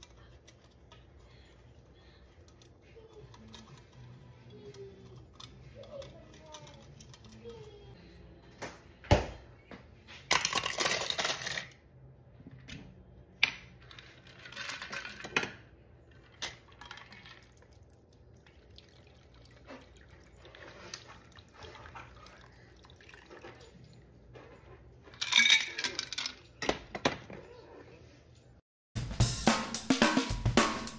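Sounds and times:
liquid pouring and dripping: 0:16.7 - 0:24.0
glass and metal clinking: 0:25.1 - 0:26.6.

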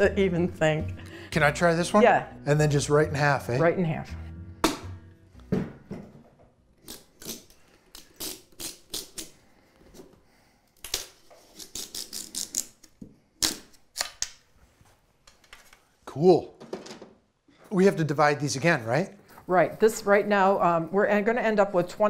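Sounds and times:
bamboo cane cracking and snapping: 0:06.8 - 0:09.3.

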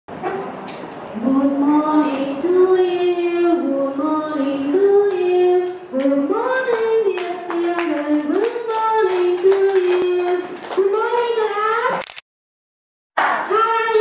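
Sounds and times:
woman singing into a microphone: 0:01.2 - 0:11.9
hand claps: 0:06.0 - 0:11.3.

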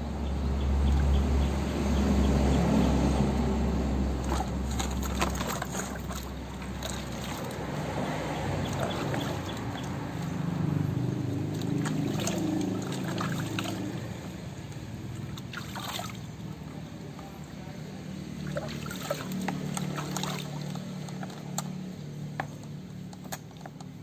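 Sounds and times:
water sloshing in plastic tub: 0:04.0 - 0:16.9, 0:18.3 - 0:24.0.

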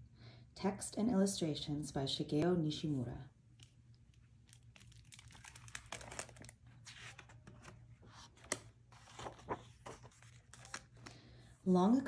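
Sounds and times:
book pages rustling: 0:03.6 - 0:11.2
page flaps and taps: 0:04.8 - 0:11.1.

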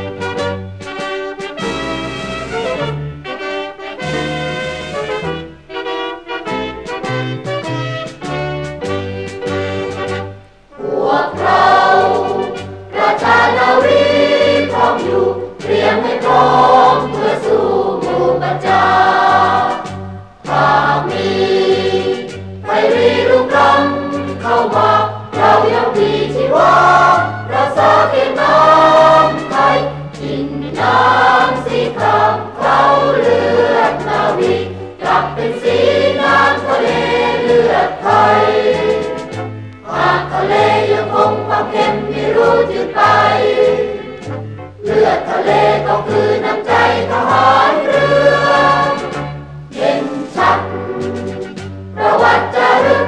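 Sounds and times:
military dance band: 0:00.0 - 0:53.0
mixed chorus singing: 0:10.7 - 0:53.0.

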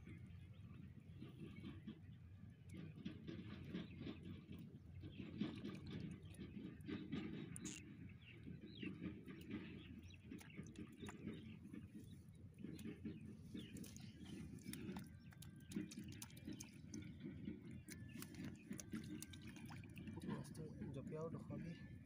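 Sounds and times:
low uneven rumble: 0:00.0 - 0:22.0
small clicks: 0:07.6 - 0:07.8.

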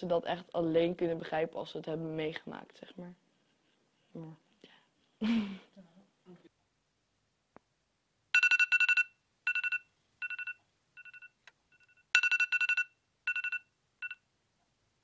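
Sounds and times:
electronic alarm beeping: 0:08.4 - 0:14.2.

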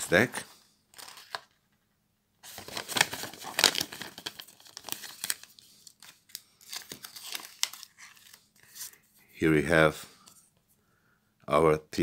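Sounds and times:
paper and cardboard rustling: 0:02.4 - 0:09.2.

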